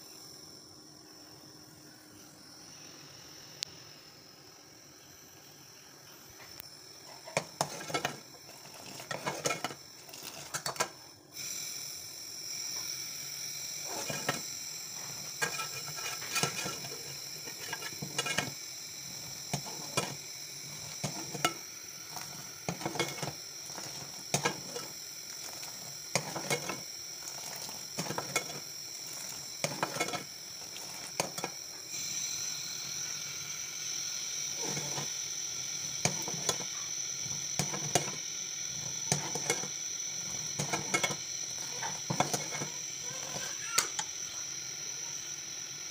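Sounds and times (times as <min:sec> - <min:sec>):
boiling hiss: 0:00.0 - 0:45.9
metal ladle scraping a pot: 0:07.1 - 0:10.9, 0:13.9 - 0:14.4, 0:15.0 - 0:18.5, 0:19.5 - 0:20.2, 0:20.8 - 0:24.9, 0:25.6 - 0:26.8, 0:27.4 - 0:28.6, 0:29.6 - 0:31.5, 0:34.6 - 0:35.1, 0:40.6 - 0:43.5.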